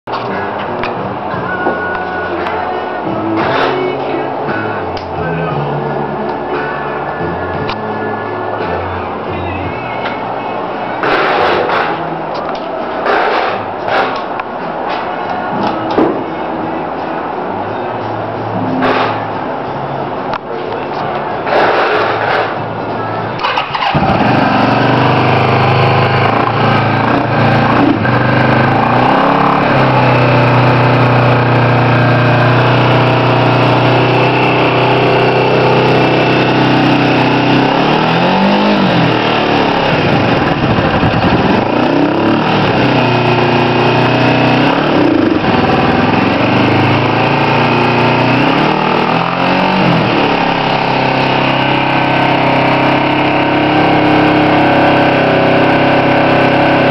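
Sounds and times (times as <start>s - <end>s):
motorcycle engine idling and revving: 0.1s - 16.8s, 21.1s - 56.9s.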